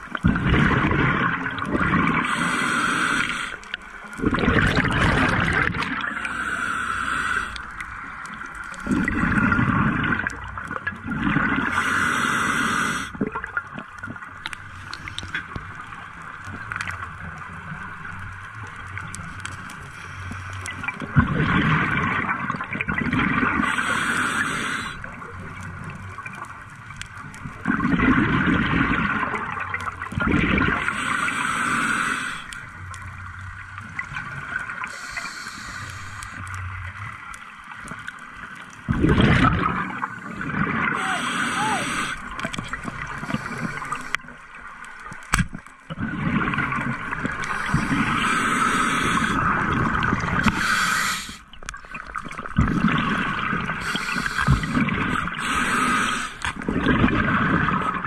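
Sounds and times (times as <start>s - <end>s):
exhaled bubbles gurgling: 0.0s - 58.0s
regulator hissing inhale: 2.2s - 3.7s, 6.1s - 7.8s, 11.7s - 13.2s, 23.6s - 25.1s, 30.8s - 32.6s, 34.8s - 36.6s, 41.0s - 42.4s, 43.2s - 44.3s, 47.4s - 49.4s, 50.4s - 51.5s, 53.8s - 56.5s.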